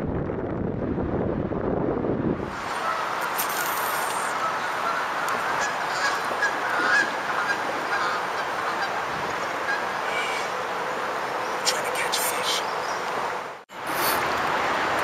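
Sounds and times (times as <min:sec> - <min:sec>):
steady hiss: 0:02.6 - 0:04.4
birds honking: 0:02.7 - 0:11.6.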